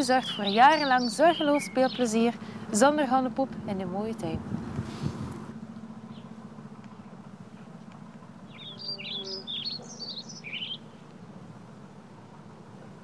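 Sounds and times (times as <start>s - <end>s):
songbird chirping: 0.0s - 3.3s, 8.4s - 11.2s
steady low hum: 0.0s - 13.0s.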